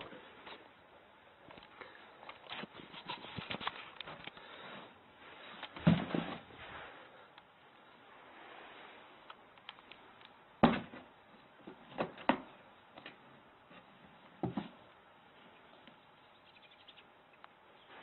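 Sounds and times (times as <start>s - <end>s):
faint hiss: 4.2s - 10.6s.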